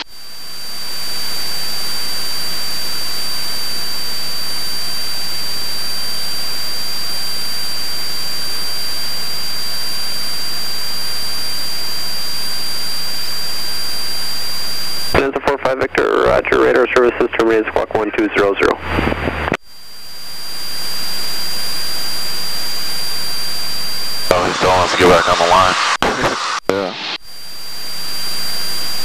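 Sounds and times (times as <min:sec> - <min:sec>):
radio static hiss: 0:00.0 - 0:29.0
high-pitched whine: 0:19.6 - 0:29.0.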